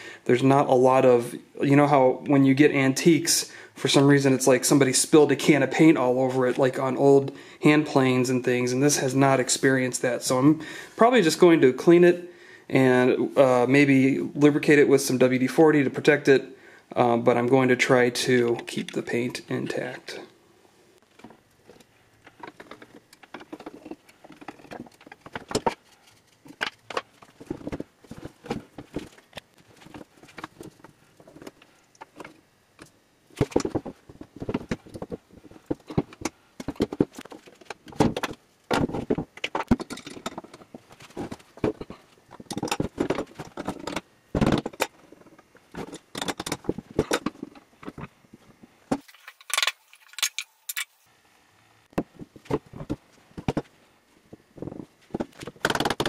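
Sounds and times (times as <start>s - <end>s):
metal tools clinking and clanking: 49.2s - 50.9s.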